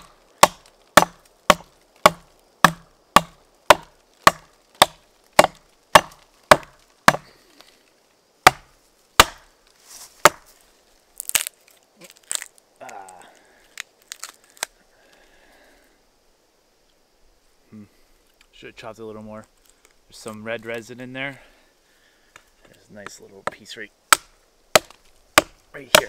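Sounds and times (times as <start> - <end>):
axe chopping wood: 0.0 - 7.4, 8.4 - 9.5, 10.2 - 10.5, 23.4 - 26.0
short rustle: 9.6 - 12.6.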